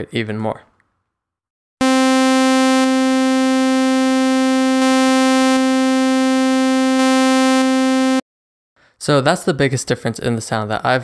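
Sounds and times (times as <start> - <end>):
clipped synthesized sawtooth tone: 1.8 - 8.2.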